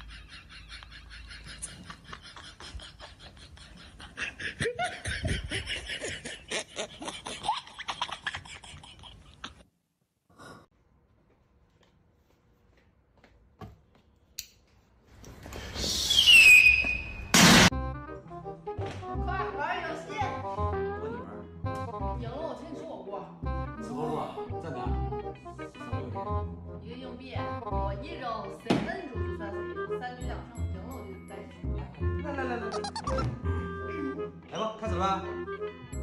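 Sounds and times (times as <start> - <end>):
laughter in rapid bursts: 0.0 - 9.6.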